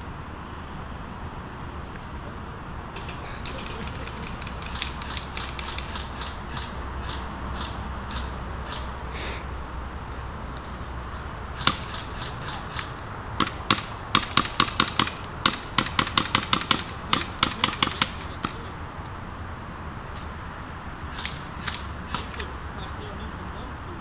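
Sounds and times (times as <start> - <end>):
airsoft guns firing: 3.0 - 9.0, 11.5 - 18.7, 21.1 - 22.6.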